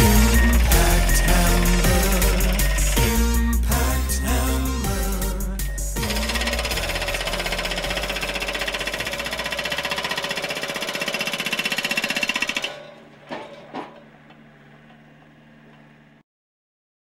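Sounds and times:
hydraulic hammer pounding pavement: 0.0s - 3.4s, 6.0s - 15.9s
steady hum: 0.0s - 16.2s.

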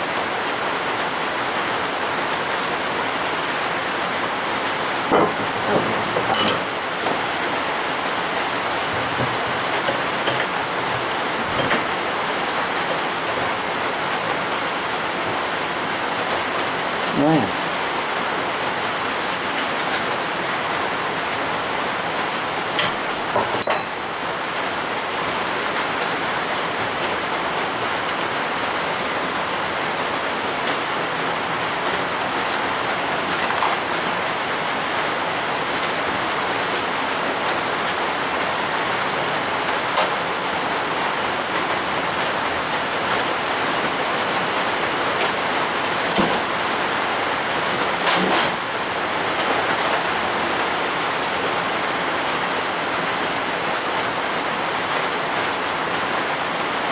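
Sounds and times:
metal tools clinking: 5.2s - 6.8s, 22.8s - 24.6s.

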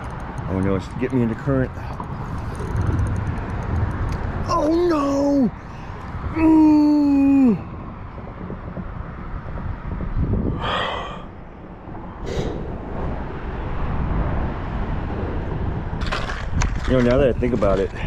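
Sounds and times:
traffic on bridge: 0.0s - 18.0s
short breathy rush: 10.5s - 11.5s, 12.2s - 13.0s.

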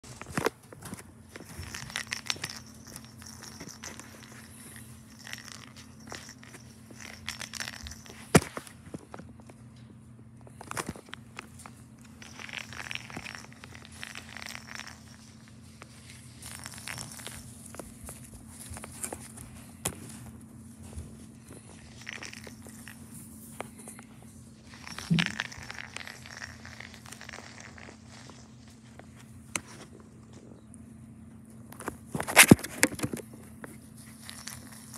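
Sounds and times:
faint low hum: 0.0s - 34.9s
soft rustling: 10.6s - 30.5s.

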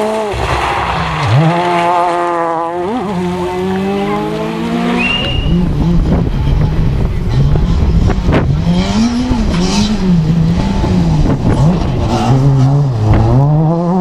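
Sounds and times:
tyres on gravel and mud: 0.0s - 5.7s
rally car engine revving: 0.0s - 14.0s.

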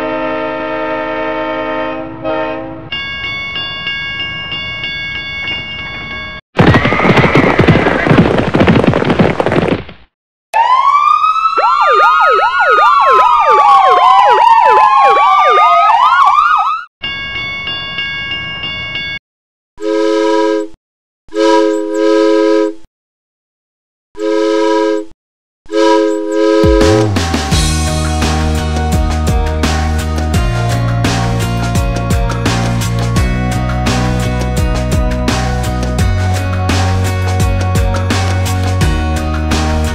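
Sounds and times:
train whistle toots: 0.0s - 2.8s, 19.8s - 22.8s, 24.2s - 25.1s, 25.7s - 27.2s
police sirens wailing: 10.6s - 16.9s.

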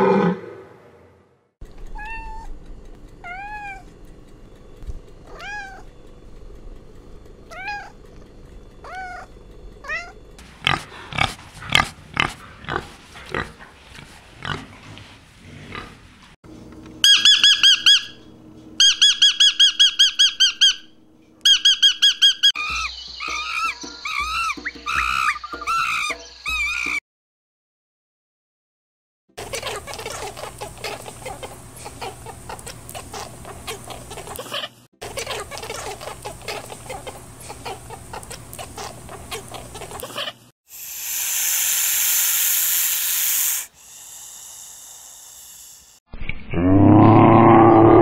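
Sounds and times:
pigs grunting: 0.0s - 0.8s, 10.4s - 16.3s
cat meowing: 2.0s - 2.5s, 3.2s - 3.8s, 5.3s - 5.8s, 7.5s - 8.0s, 8.8s - 10.2s
high squeaking chirps: 17.0s - 27.0s
monkeys calling and chattering: 17.1s - 18.2s, 18.8s - 27.0s, 29.4s - 40.5s.

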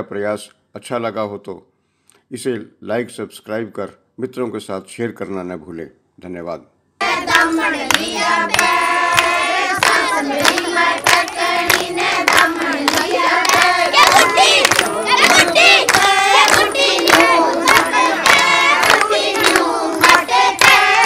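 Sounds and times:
handclaps: 7.0s - 21.0s
women singing folk song: 7.0s - 21.0s.

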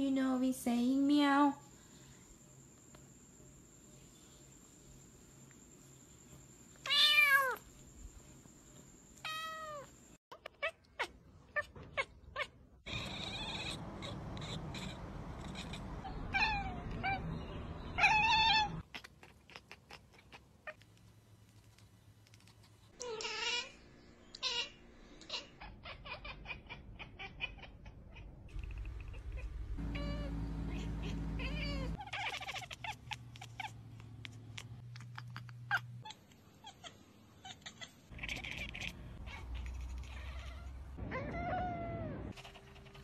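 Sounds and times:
cats meowing: 9.3s - 17.3s, 17.9s - 20.8s, 24.3s - 33.8s, 35.0s - 43.0s.

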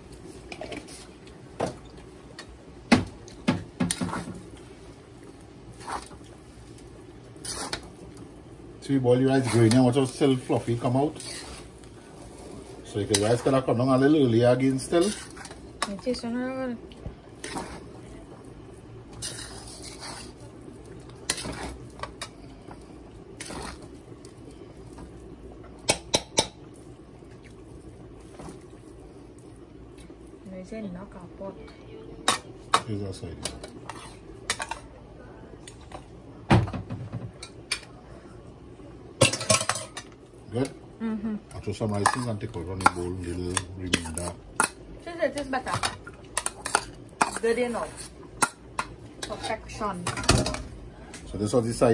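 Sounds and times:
low background hum: 0.0s - 51.9s
metal spatula scraping a wok: 7.4s - 7.8s, 11.1s - 11.7s, 14.8s - 15.6s, 19.1s - 20.4s, 21.3s - 21.8s, 46.4s - 48.5s, 49.2s - 49.8s.

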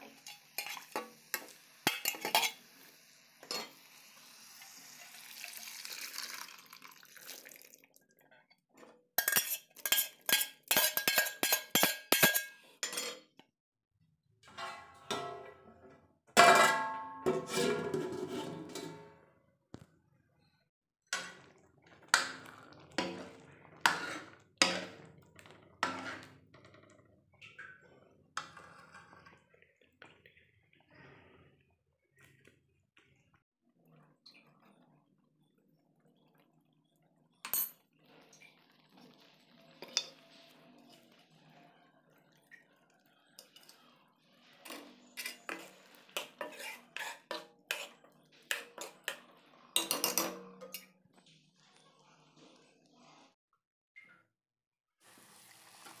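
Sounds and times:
metal clanks of lid and spoon: 0.0s - 2.6s, 3.4s - 3.9s, 9.2s - 13.3s, 16.4s - 19.2s, 22.2s - 25.1s, 49.8s - 51.0s
spoon scraping pot: 0.0s - 4.0s, 9.2s - 13.3s, 16.4s - 19.8s, 21.2s - 26.8s, 27.5s - 29.5s, 44.6s - 50.9s.

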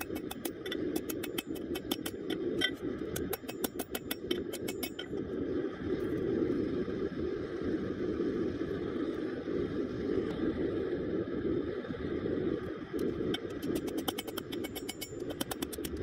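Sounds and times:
hammer striking metal on anvil: 0.0s - 5.1s
gas forge burner roar: 0.0s - 5.2s, 13.0s - 16.0s.

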